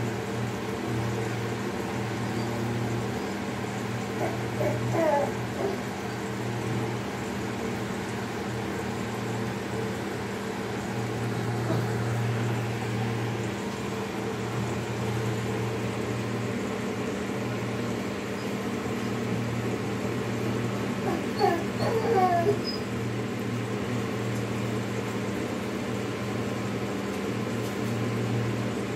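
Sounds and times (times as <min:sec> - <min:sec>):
low machine hum: 0:00.0 - 0:28.9
animal whining: 0:04.0 - 0:06.8, 0:20.4 - 0:23.0.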